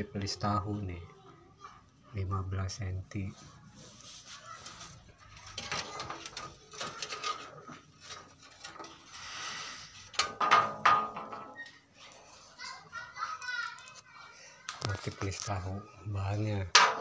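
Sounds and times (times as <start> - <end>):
clicks and scrapes: 4.0 - 12.2.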